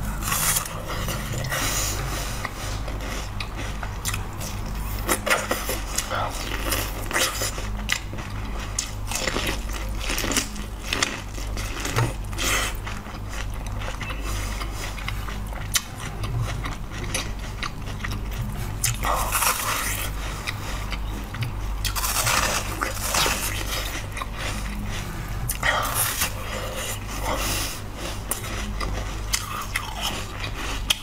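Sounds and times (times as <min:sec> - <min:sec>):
crunchy chewing of corn: 0:00.0 - 0:31.0
steady low hum: 0:00.0 - 0:31.0.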